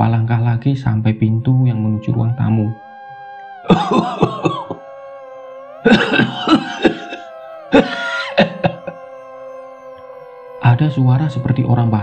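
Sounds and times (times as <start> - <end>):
background music drone: 0.1 - 12.0
person coughing: 5.9 - 7.2.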